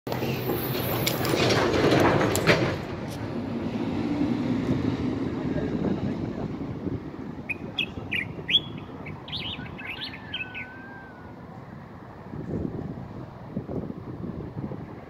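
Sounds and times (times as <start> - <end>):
bird singing chirped whistled notes: 7.5 - 11.0.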